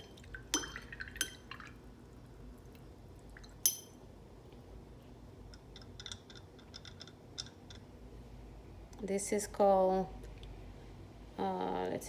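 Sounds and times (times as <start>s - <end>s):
paintbrush clinking on porcelain: 3.7s - 4.0s.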